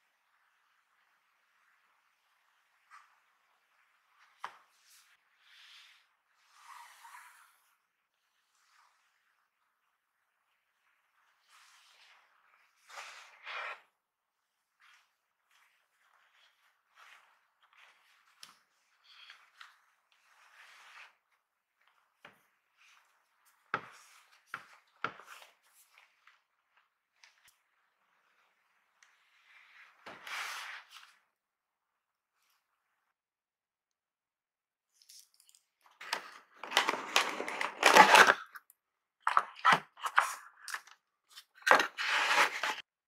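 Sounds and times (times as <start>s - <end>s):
rustling of thin wrapping sheet: 36.0s - 38.5s, 41.4s - 42.9s.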